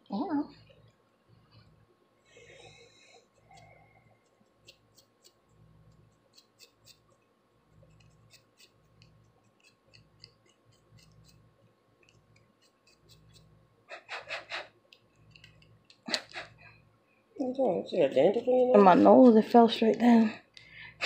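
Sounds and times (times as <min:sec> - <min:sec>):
comb scratching scalp: 0:03.2 - 0:07.2, 0:07.8 - 0:16.5, 0:17.6 - 0:19.8.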